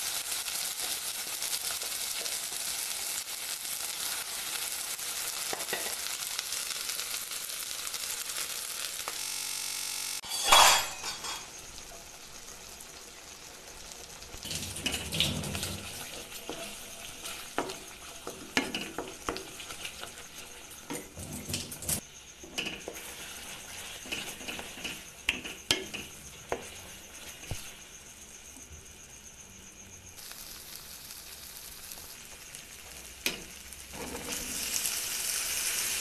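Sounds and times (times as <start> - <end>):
paste sizzling in a frying pan: 0.0 - 36.0
spatula scraping a pan: 10.2 - 11.6, 14.5 - 27.8, 33.3 - 34.9.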